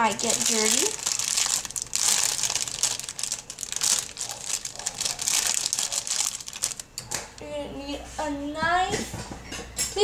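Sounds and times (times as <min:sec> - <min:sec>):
plastic bag crinkling: 0:00.0 - 0:07.4.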